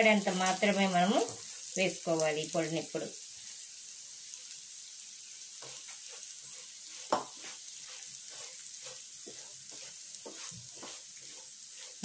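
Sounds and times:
food sizzling in a pan: 0.0 - 12.0
spatula scraping a pan: 5.6 - 12.0
spatula clacking against pan: 7.0 - 12.0.

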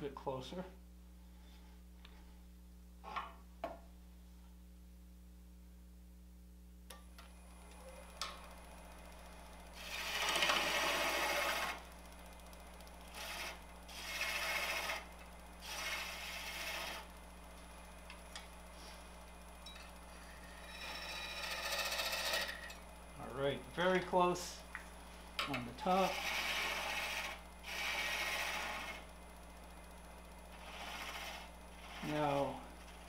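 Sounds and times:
steady low hum: 0.0 - 33.0
lathe tool scraping wood: 9.7 - 11.9, 13.0 - 17.2, 20.2 - 22.8, 25.8 - 29.1, 30.4 - 33.0.

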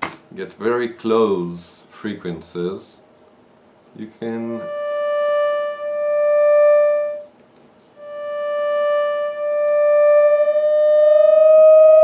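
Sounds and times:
synthesized tones: 4.3 - 7.3, 8.0 - 12.0.

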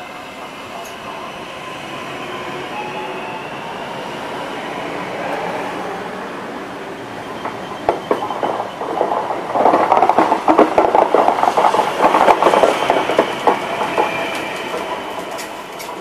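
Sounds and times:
electric train whine: 0.0 - 16.0
train wheels clattering over joints: 7.4 - 16.0.

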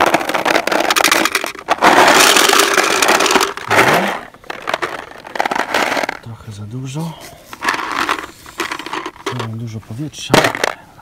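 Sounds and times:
paintballs clattering into hopper: 0.0 - 6.3, 7.5 - 9.7, 10.3 - 10.8.

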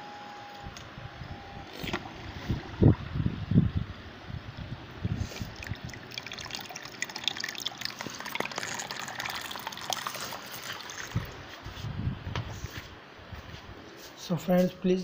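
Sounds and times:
water jet splashing into basin: 5.4 - 11.4.

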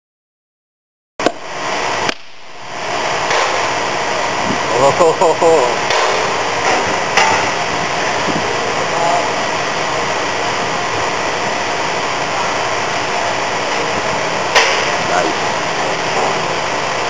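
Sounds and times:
machinery and ventilation noise: 1.2 - 17.0
sharp electrical snap: 2.0 - 2.6.

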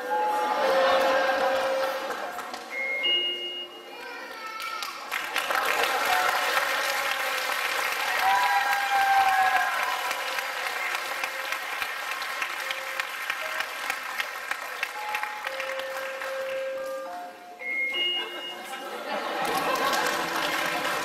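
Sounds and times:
audience applauding: 0.8 - 2.7, 4.4 - 16.9, 19.1 - 21.0.

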